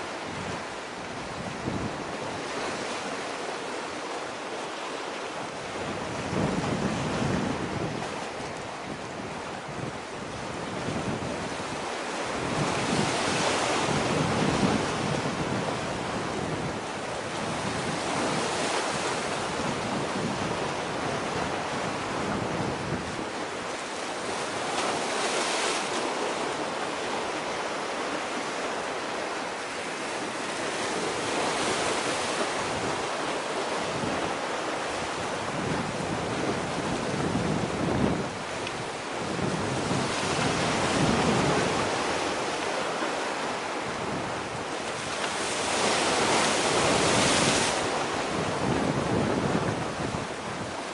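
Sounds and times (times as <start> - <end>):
wind on microphone: 0.0 - 4.6, 5.4 - 50.9
sea surf: 0.0 - 50.9.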